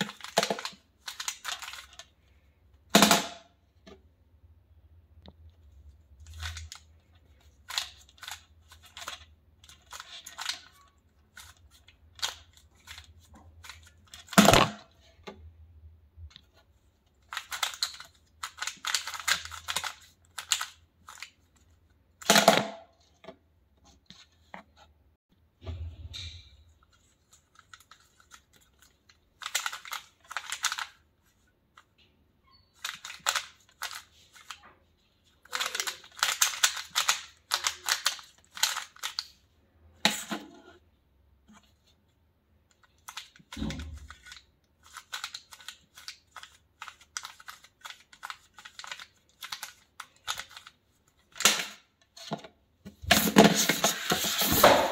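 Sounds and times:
puzzle cube plastic clicks: 0.0s - 2.1s, 6.2s - 14.7s, 17.2s - 21.4s, 27.0s - 31.0s, 32.7s - 34.6s, 35.4s - 39.4s, 42.7s - 51.8s.

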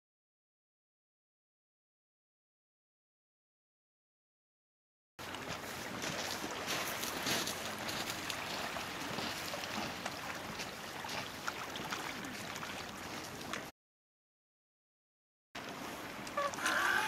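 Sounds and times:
waves washing over pebbles: 5.2s - 13.7s.

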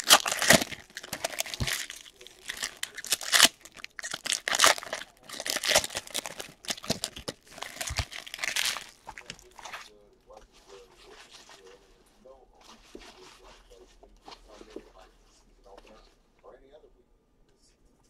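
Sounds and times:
packs tearing open: 0.0s - 9.9s
foil wrappers crinkling: 0.0s - 11.9s.

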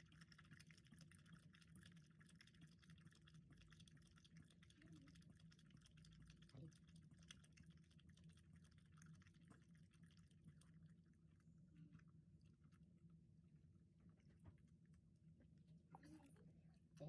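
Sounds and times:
dog lapping water: 0.0s - 12.9s.

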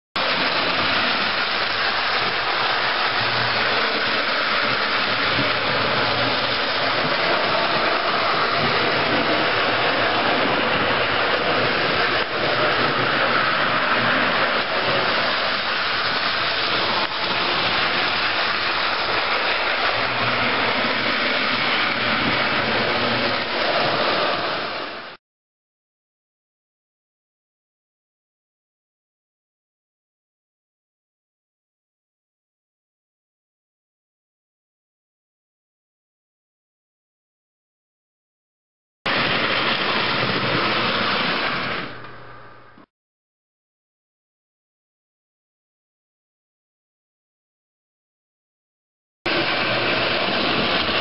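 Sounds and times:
toy train running on track: 0.2s - 25.2s, 39.1s - 42.1s, 49.3s - 51.0s.

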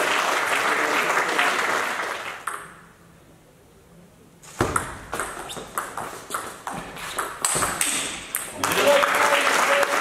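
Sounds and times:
applause: 0.0s - 2.4s, 8.6s - 10.0s.

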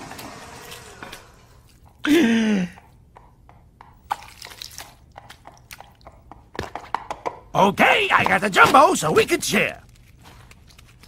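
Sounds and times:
person's wordless vocal sound: 2.0s - 2.9s.

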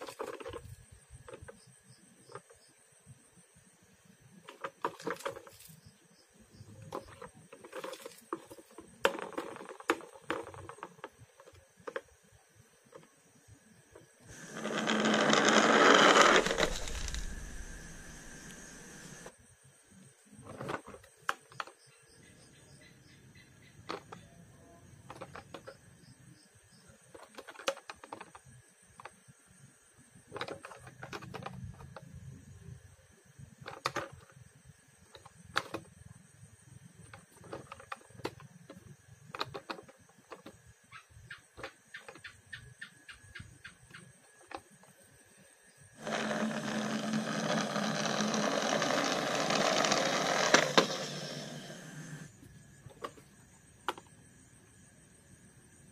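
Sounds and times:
toy car rolling on a mat: 0.0s - 2.6s, 4.4s - 5.9s, 6.6s - 12.3s, 14.0s - 19.3s, 20.4s - 21.9s, 23.9s - 25.9s, 27.0s - 29.3s, 30.2s - 32.6s, 33.5s - 40.7s, 45.9s - 54.1s
plastic toys clicking and knocking: 20.5s - 21.8s, 23.8s - 24.3s, 25.0s - 25.9s, 27.1s - 29.2s, 30.2s - 32.2s, 33.6s - 34.4s, 35.0s - 35.9s, 37.0s - 40.7s, 41.4s - 42.7s, 46.0s - 51.7s.

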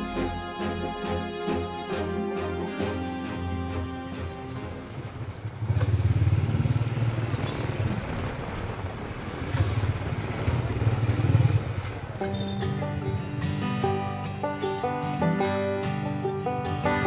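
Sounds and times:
music: 0.0s - 5.4s, 12.2s - 17.0s
motorbike engine running: 4.9s - 9.0s.

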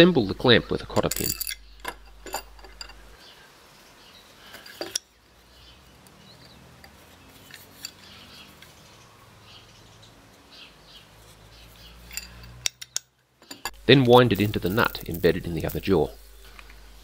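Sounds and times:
metallic clinks: 1.0s - 3.2s, 12.0s - 13.8s.

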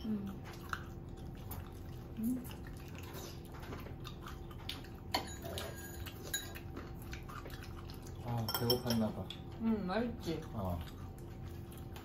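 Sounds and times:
faint chewing: 0.0s - 12.0s
faint steady hum: 0.0s - 12.0s
chopsticks and dishes clicking: 8.4s - 9.4s.

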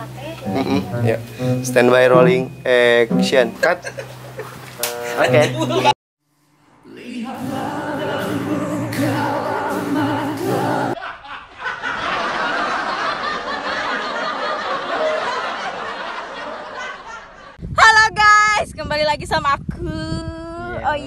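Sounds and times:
dense noisy mix of sounds: 0.0s - 5.9s
person singing with vibrato: 6.7s - 11.0s.

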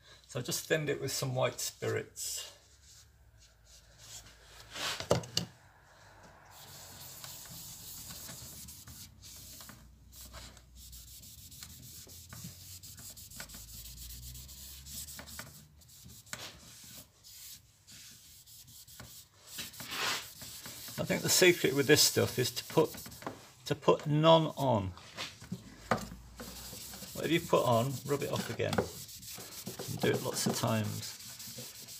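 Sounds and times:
cloth wiping wood: 6.5s - 23.4s, 26.3s - 31.9s.

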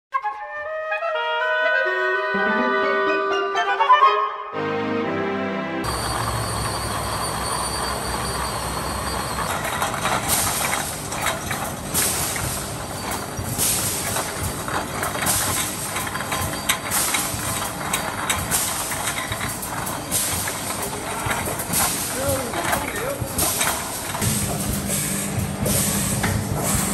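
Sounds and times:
steady machine noise: 5.8s - 26.9s
metal cans clattering on conveyor: 9.4s - 25.0s, 25.6s - 26.9s
compressed air hiss bursts: 11.8s - 16.0s, 23.2s - 26.9s.

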